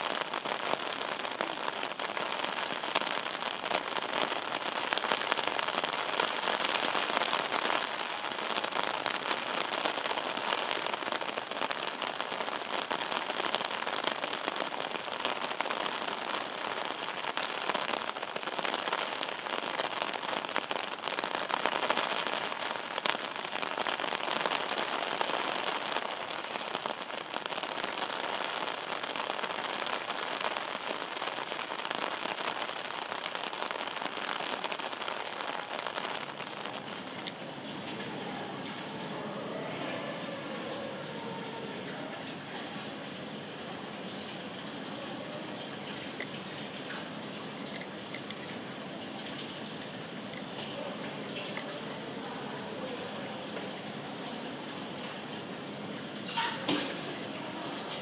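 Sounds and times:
steady rain falling: 0.0 - 58.0.

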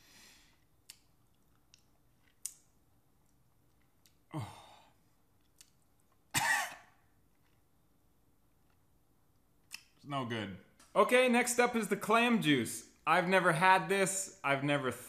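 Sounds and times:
man coughing: 6.3 - 7.0.

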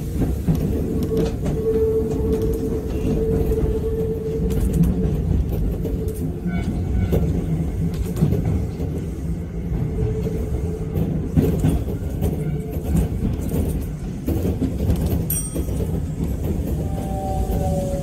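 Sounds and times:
train rumbling with rail clacks: 0.0 - 18.0
train wheel squeal: 0.8 - 13.7, 15.3 - 18.0
train falling whine: 15.5 - 18.0.

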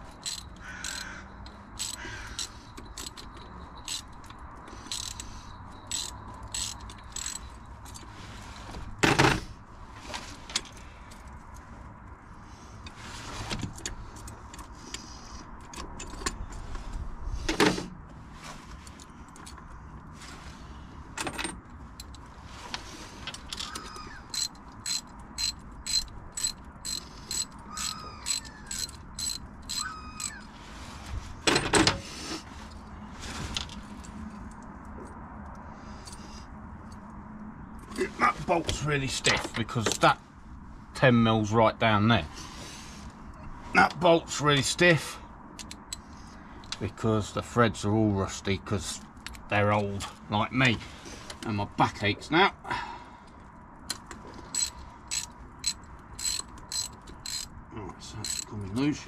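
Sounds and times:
ratchet wrench clicking: 0.0 - 1.2, 1.8 - 7.6, 23.6 - 30.4, 53.9 - 57.5, 58.2 - 58.5.

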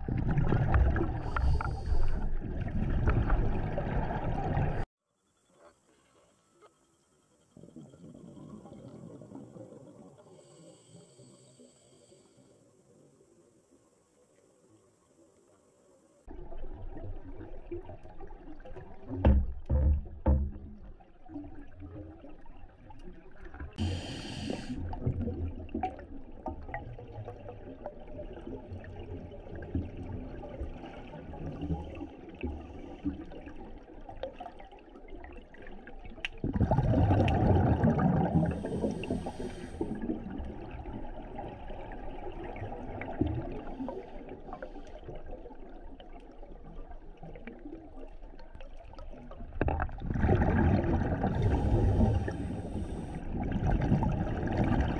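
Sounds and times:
rush of exhaled bubbles: 0.0 - 4.9, 36.3 - 45.8, 49.1 - 54.9
regulator hissing on inhale: 1.2 - 2.3, 10.2 - 12.9, 23.8 - 24.9, 38.4 - 40.1, 51.4 - 53.3
steady low underwater rumble: 16.3 - 54.9.

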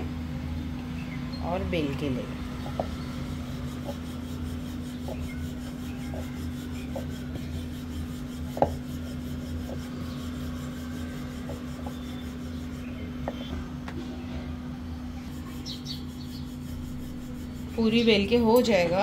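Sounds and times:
steady low hum: 0.0 - 19.0
rolling pin rubbing on dough: 1.9 - 13.9, 14.9 - 19.0
wood knocking on wood: 2.6 - 3.0, 8.5 - 8.8, 13.2 - 14.0.

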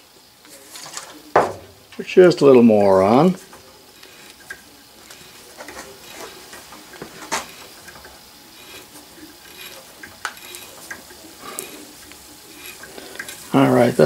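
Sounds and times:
metal tap scraping and creaking: 3.5 - 13.5.

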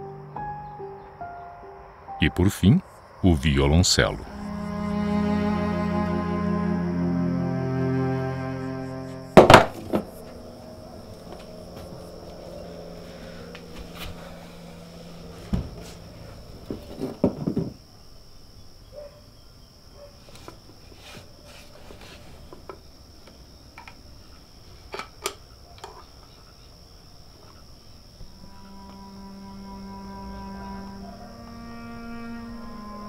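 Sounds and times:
crickets chirring: 0.0 - 33.0
objects knocking on a wooden workbench: 9.4 - 10.1, 15.5 - 16.0, 16.7 - 17.8.

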